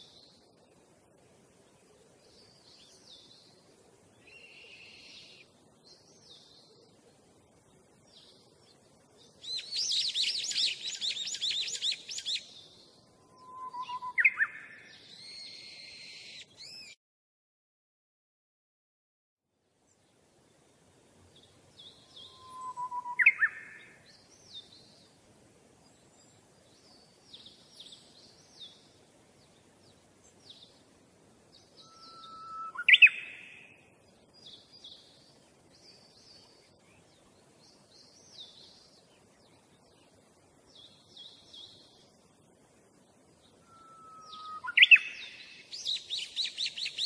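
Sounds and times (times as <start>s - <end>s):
small birds chirping: 0.0s - 17.0s, 19.8s - 47.0s
loud bird calls: 31.8s - 33.8s, 43.6s - 47.0s.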